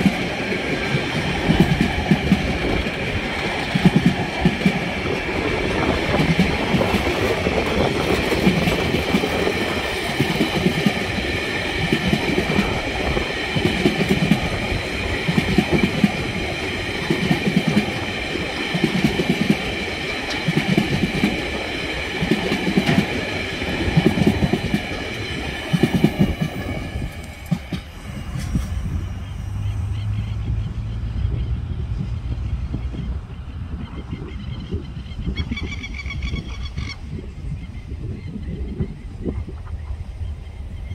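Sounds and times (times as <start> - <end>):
train wheels clacking over rail joints: 0.0 - 28.7
train rumble: 0.0 - 40.9.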